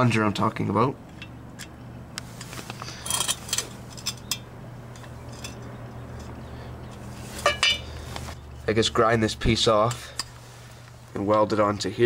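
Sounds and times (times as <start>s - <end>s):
steady low hum: 0.0s - 12.0s
metal parts clinking: 2.8s - 7.9s.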